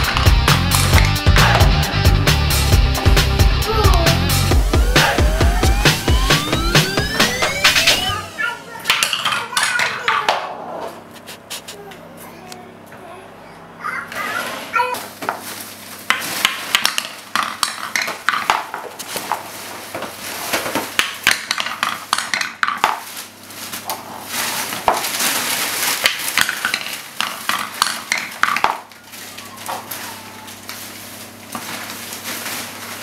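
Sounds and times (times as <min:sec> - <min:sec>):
wooden balls rattling and dropping: 0:00.0 - 0:01.6, 0:08.9 - 0:10.6, 0:16.1 - 0:23.1, 0:24.7 - 0:29.0.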